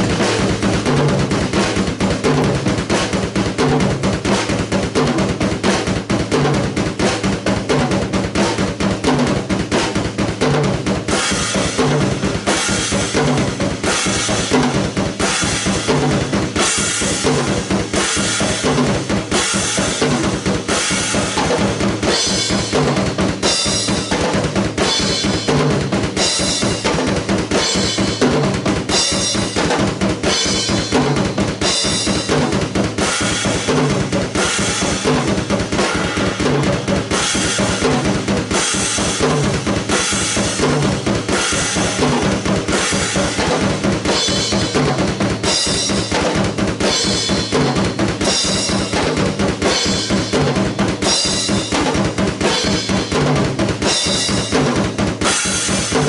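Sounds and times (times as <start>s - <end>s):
bass drum and snare hits: 0.0s - 56.0s
cymbal strikes: 55.2s - 56.0s.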